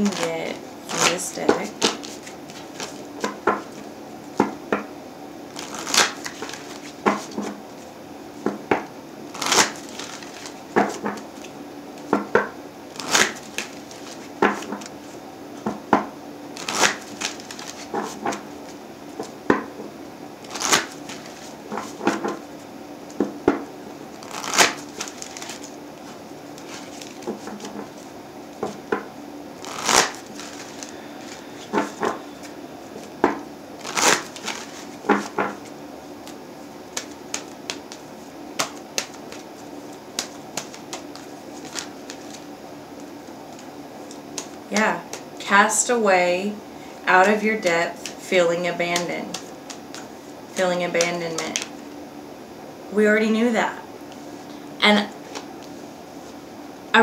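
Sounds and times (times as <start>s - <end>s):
cards being shuffled: 0.0s - 4.8s, 5.5s - 7.6s, 8.4s - 15.8s, 16.6s - 19.6s, 20.4s - 22.5s, 23.1s - 29.0s, 29.6s - 45.2s, 48.8s - 50.1s, 50.8s - 51.8s, 55.2s - 56.4s.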